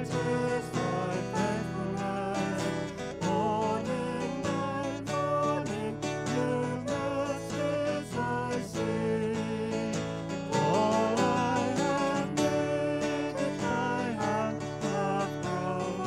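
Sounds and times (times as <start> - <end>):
person singing a hymn: 0.0 - 16.0
strummed acoustic guitar: 0.0 - 16.0.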